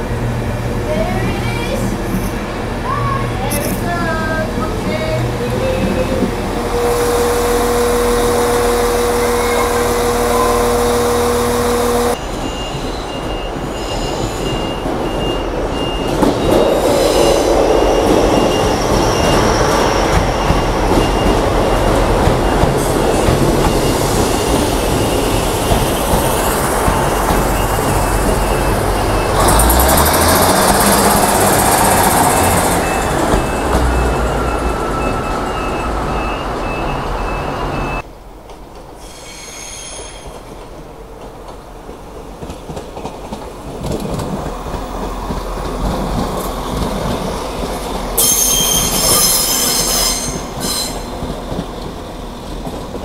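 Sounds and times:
train rumble: 0.0s - 53.0s.

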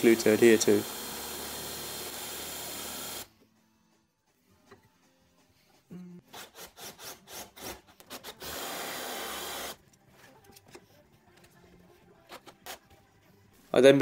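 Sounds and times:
drill boring into plywood: 0.0s - 3.3s, 8.4s - 9.8s.

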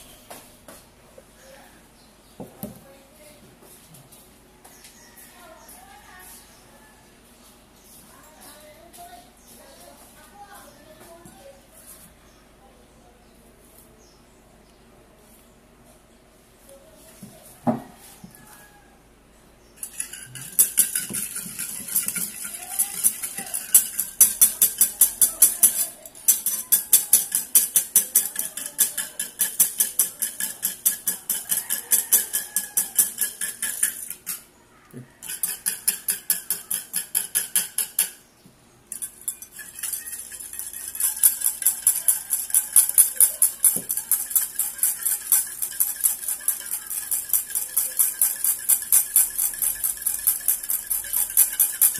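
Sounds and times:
whisk beating in ceramic bowl: 19.8s - 34.4s, 35.2s - 38.2s, 38.9s - 51.9s.

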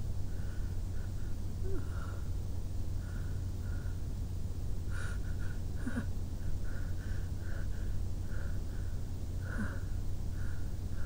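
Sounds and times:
steady low hum: 0.0s - 11.0s
person sniffling and breathing: 4.9s - 11.0s.

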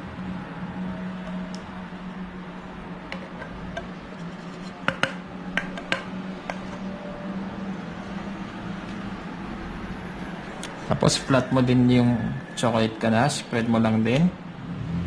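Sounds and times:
utensil knocking metal pot: 4.8s - 6.8s.

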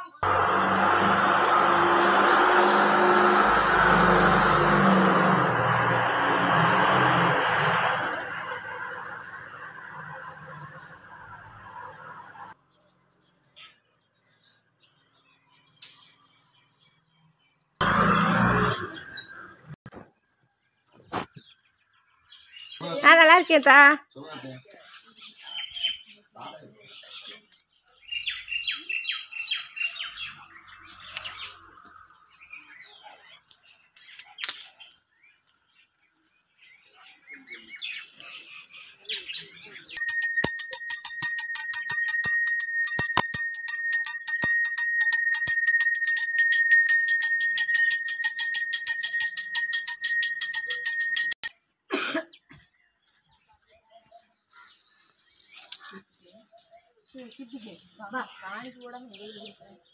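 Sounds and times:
brass bell rung rapidly: 0.2s - 9.1s, 40.0s - 51.5s.

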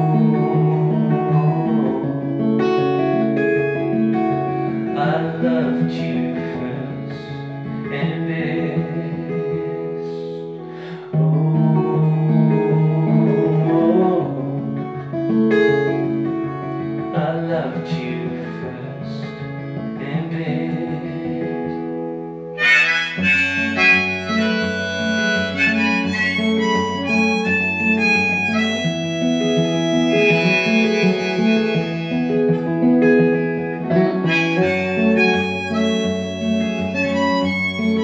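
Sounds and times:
harmonica melody: 0.0s - 4.9s, 22.5s - 38.0s
acoustic guitar strumming: 0.0s - 38.0s.

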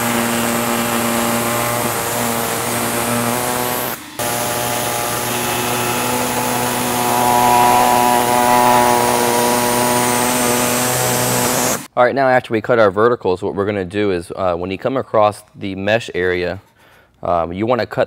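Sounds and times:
pneumatic saw cutting plastic: 0.0s - 11.9s.

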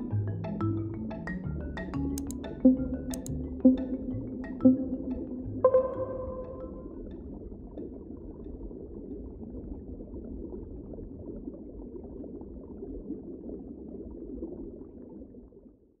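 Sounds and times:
water bubbling: 2.4s - 15.4s.

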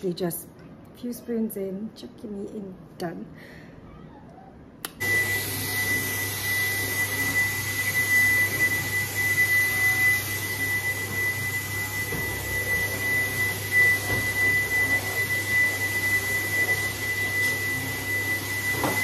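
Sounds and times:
vacuum cleaner motor whine: 4.9s - 19.0s.

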